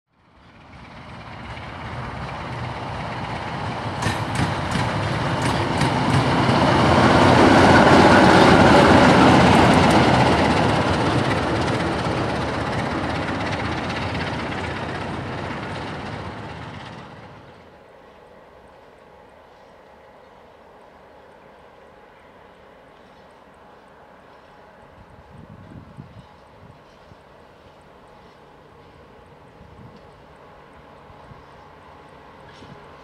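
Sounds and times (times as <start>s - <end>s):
freight train passing: 0.1s - 33.0s
wheels clicking on rails: 0.6s - 17.8s.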